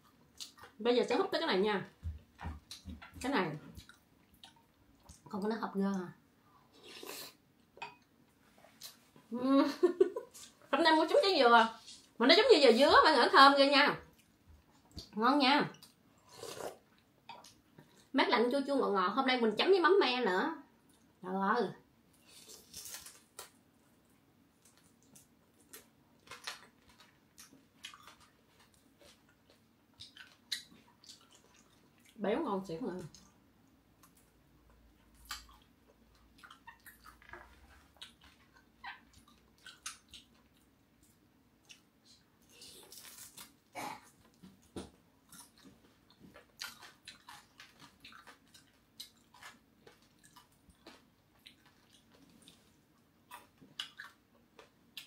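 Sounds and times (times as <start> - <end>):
crunchy food being chewed: 22.2 - 23.6, 24.6 - 32.2, 34.0 - 55.0.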